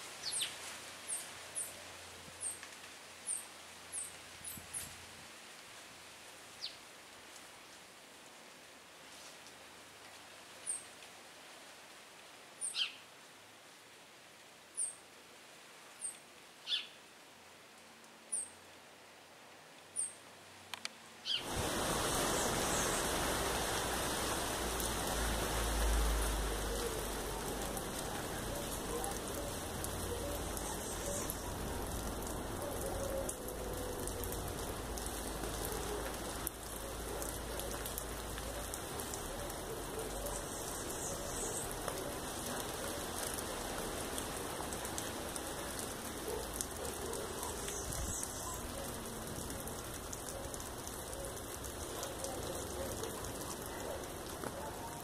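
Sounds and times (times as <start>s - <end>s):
falling water patter: 21.2s - 55.0s.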